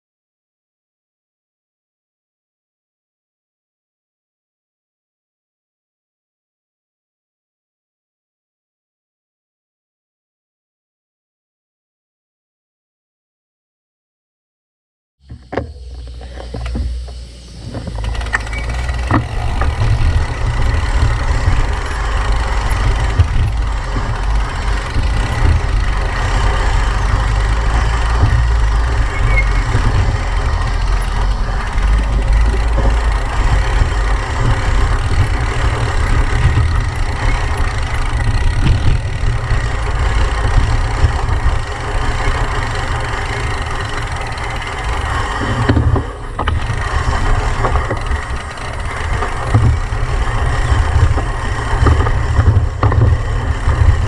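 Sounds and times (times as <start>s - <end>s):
bike rattles and clicks: 15.2s - 54.0s
bike tyres rolling on dirt: 15.3s - 54.0s
wind buffeting microphone: 17.6s - 54.0s.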